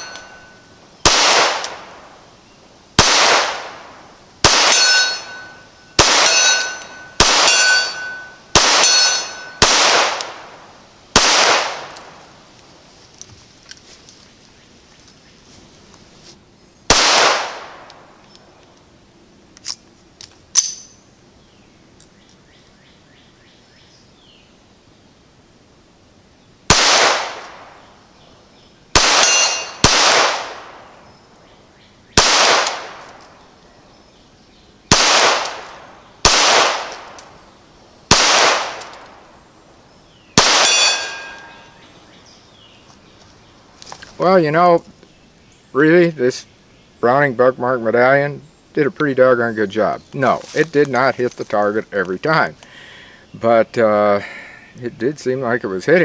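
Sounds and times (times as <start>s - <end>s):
pistol shots: 0.0s - 2.1s, 3.0s - 12.2s, 16.9s - 18.0s, 26.7s - 27.8s, 28.9s - 30.9s, 32.2s - 33.2s, 34.9s - 37.2s, 38.1s - 39.2s, 40.4s - 41.7s.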